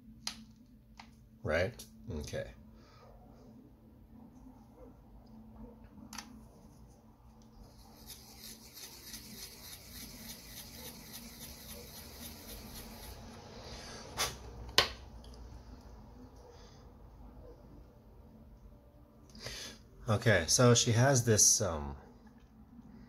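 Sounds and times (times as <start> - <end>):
pencil sharpening scrape: 7.8 - 13.2.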